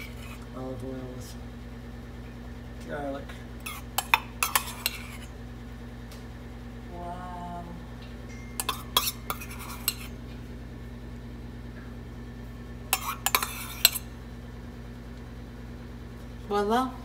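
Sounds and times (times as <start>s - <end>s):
metal spoon scraping ceramic dish: 0.0s - 0.4s, 3.6s - 5.3s, 8.6s - 10.2s, 12.9s - 14.2s
steady low hum: 0.0s - 17.0s.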